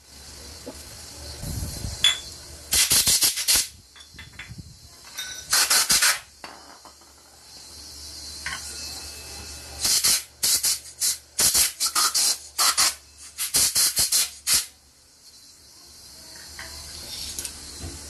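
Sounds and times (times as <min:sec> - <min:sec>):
compressed air hissing: 0:00.0 - 0:03.9, 0:05.5 - 0:06.4, 0:09.8 - 0:14.8.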